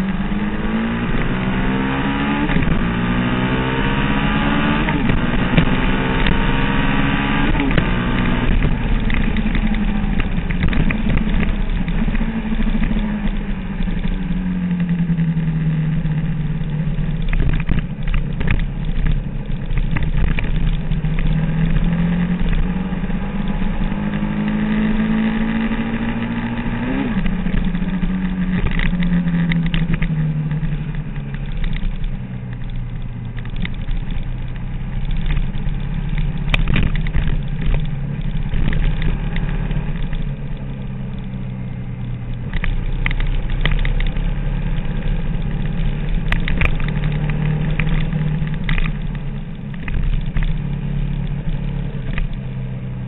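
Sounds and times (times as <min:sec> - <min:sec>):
motorcycle engine revving: 0:00.0 - 0:53.0.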